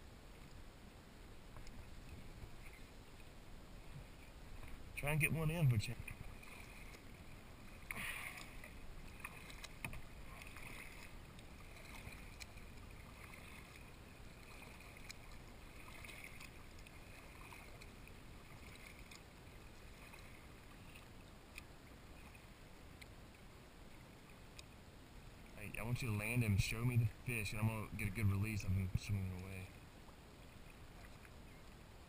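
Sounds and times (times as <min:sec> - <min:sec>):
paddle splashing in water: 0:01.5 - 0:24.6, 0:30.1 - 0:31.8.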